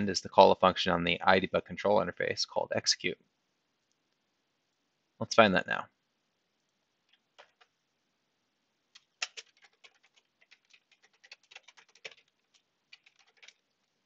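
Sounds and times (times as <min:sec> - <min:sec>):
faint keyboard typing: 0:07.0 - 0:07.8, 0:08.9 - 0:14.0.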